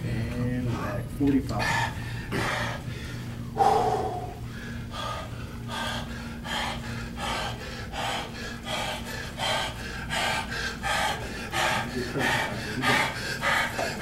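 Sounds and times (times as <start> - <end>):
low hum: 1.0 - 11.7
man breathing hard: 1.6 - 14.0.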